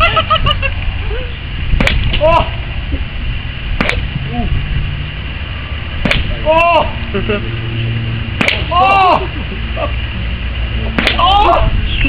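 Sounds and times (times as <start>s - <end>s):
golf club striking ball: 1.8s - 2.2s, 3.8s - 4.1s, 6.0s - 6.3s, 8.4s - 8.7s, 10.9s - 11.2s
man shouting: 2.2s - 2.5s, 6.4s - 7.0s, 8.7s - 9.4s, 11.1s - 12.0s.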